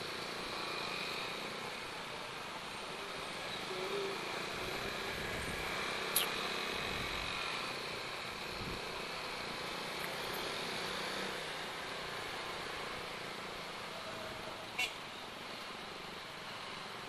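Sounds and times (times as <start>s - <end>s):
motorcycle and car traffic: 0.0s - 17.0s
squeaky vehicle horn: 14.8s - 15.0s.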